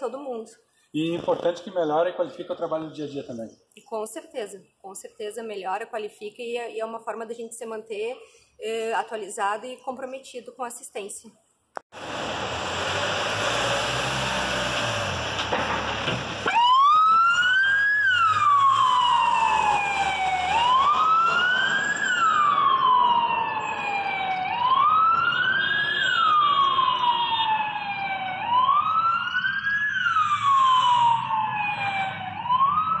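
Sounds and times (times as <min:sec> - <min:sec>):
ambulance siren wailing: 0:16.4 - 0:33.0.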